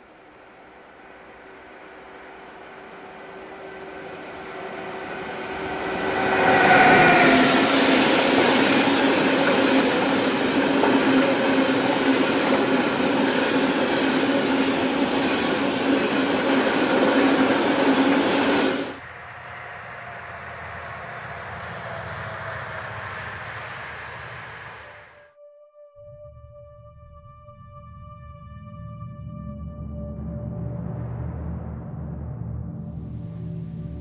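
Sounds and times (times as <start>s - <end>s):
distant electric train passing: 0.0s - 25.3s
freight train passing at speed: 0.0s - 25.3s.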